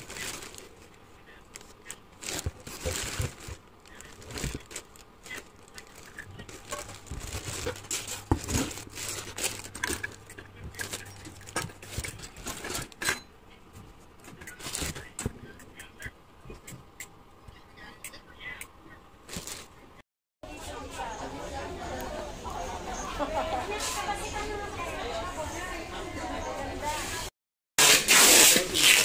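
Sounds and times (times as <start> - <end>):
plastic wrap crinkling: 0.0 - 13.0, 19.3 - 19.7.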